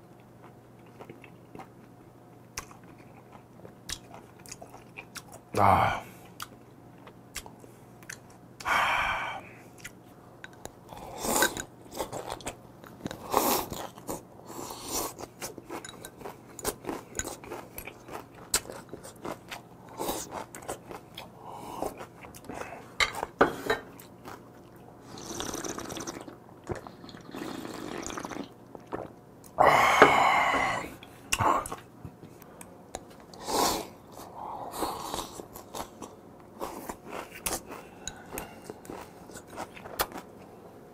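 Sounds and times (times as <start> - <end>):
chewing and crunching: 0.1 - 5.5, 6.2 - 8.4, 9.6 - 27.3, 34.0 - 40.6.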